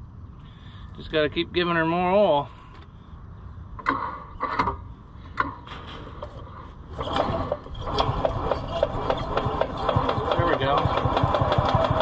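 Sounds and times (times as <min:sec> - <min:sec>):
engine scrapes and clicks: 0:05.7 - 0:12.0
engine cranking rhythmically: 0:07.0 - 0:12.0.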